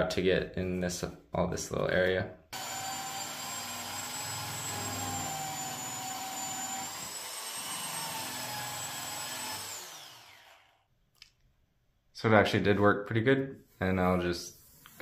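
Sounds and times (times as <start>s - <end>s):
drill abrasive disc whine: 2.6s - 10.8s.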